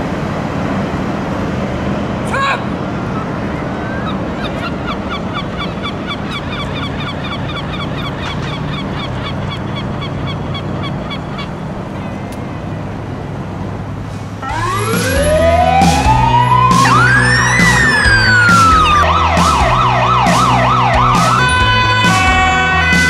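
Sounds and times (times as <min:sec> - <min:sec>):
low engine drone: 0:00.0 - 0:23.0
fire engine siren pulsing: 0:14.4 - 0:23.0.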